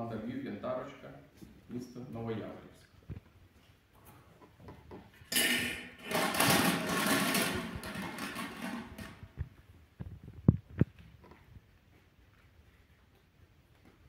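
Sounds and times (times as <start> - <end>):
plastic balls rattling in glass bowl: 5.3 - 9.5.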